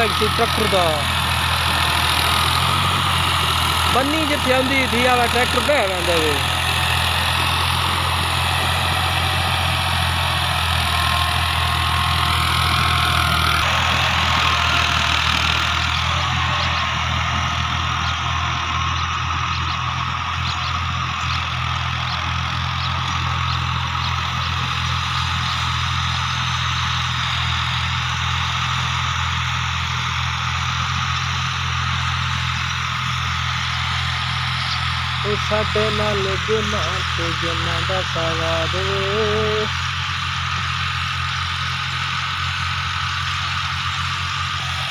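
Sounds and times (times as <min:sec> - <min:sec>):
tractor diesel engine under load: 0:00.0 - 0:44.9.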